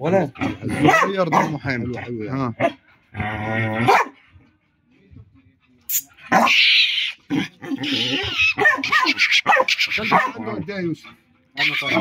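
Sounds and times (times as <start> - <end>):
dogs growling: 0.0 - 4.6, 6.2 - 12.0.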